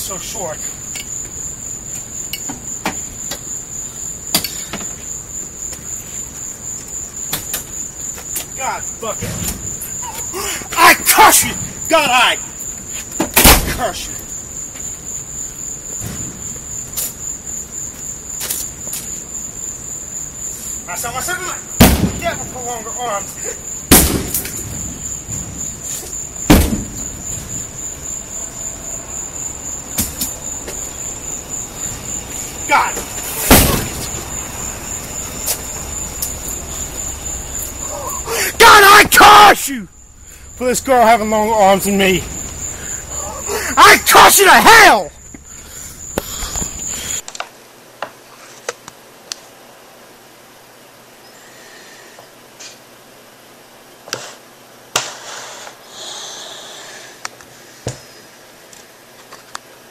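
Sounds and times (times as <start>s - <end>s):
axe striking car body: 33.4s - 34.1s.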